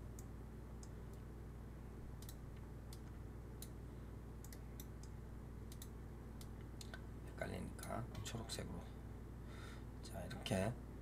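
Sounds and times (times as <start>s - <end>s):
faint low hum: 0.0s - 11.0s
computer mouse clicking: 2.2s - 3.8s, 4.4s - 7.0s.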